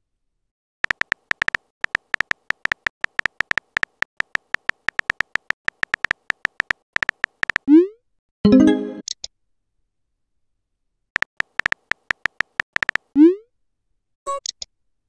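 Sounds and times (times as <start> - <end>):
phone keyboard typing clicks: 0.8 - 7.7, 11.2 - 13.1.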